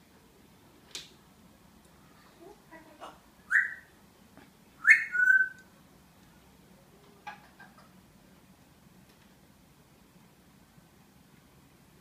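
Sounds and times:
parrot whistled calls: 3.5s - 3.9s, 4.8s - 5.7s.

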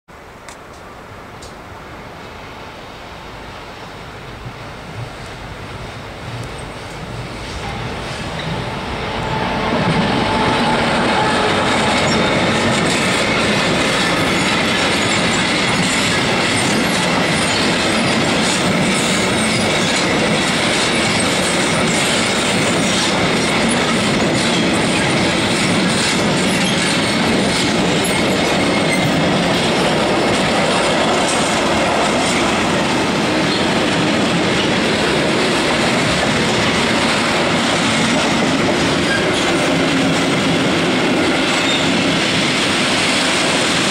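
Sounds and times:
diesel locomotive passing: 0.9s - 43.9s
high wheel squeal: 7.6s - 18.2s, 20.9s - 29.8s, 39.0s - 39.6s, 41.5s - 42.0s
wheels clicking over rail joints: 11.1s - 43.9s.

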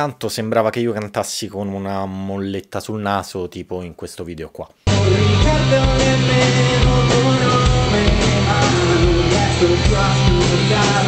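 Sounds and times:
live rock band playing: 4.9s - 11.0s
nasal male singing: 4.9s - 11.0s.

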